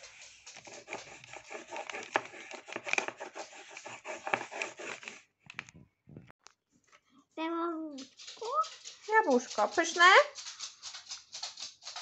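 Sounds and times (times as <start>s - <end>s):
pen scribbling on paper: 0.0s - 5.2s.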